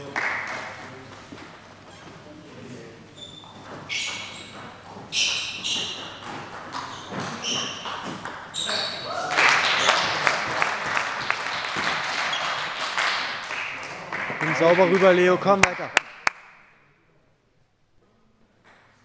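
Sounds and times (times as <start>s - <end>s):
shoes squeaking: 1.2s - 9.1s.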